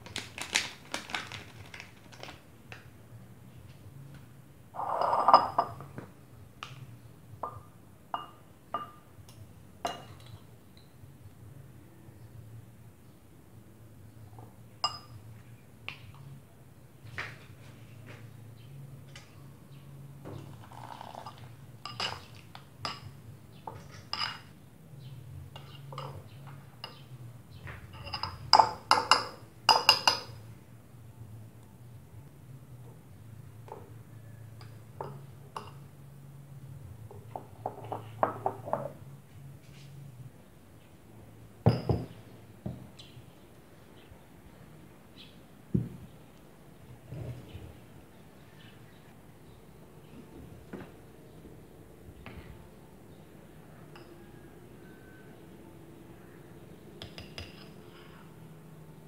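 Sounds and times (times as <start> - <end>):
spoon clinking against ceramic bowl: 4.9 - 5.9, 7.4 - 10.9, 14.8 - 15.2, 20.8 - 24.5, 27.9 - 30.4, 41.7 - 42.1, 53.9 - 55.0, 57.0 - 58.2
metal spoon clinking on glass: 14.8 - 15.2, 20.8 - 23.1, 27.9 - 30.4, 53.9 - 54.4, 57.0 - 57.8.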